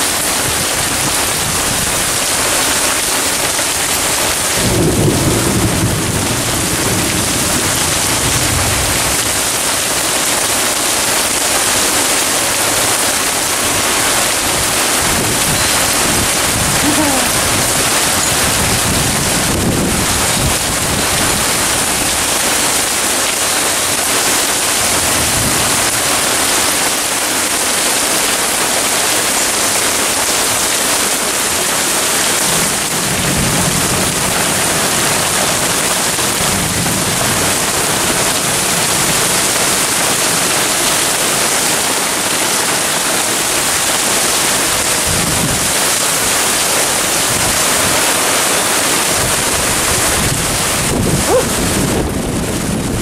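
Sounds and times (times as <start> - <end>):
heavy rain pouring: 0.0 - 53.0
strong wind: 0.1 - 26.8, 43.0 - 53.0
low thunder rumble: 4.6 - 9.8.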